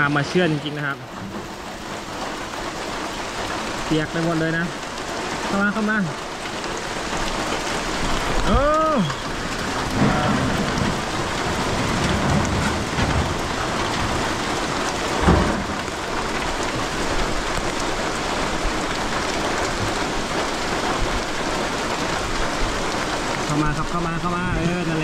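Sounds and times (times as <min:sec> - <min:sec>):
heavy rain on a metal roof: 0:00.0 - 0:25.0
low thump: 0:15.2 - 0:15.8.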